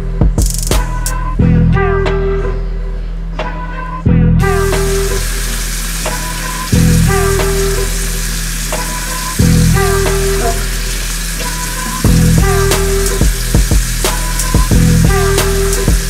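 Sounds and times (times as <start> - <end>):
background music with bass: 0.0 - 16.0
tap water running into sink: 4.5 - 16.0.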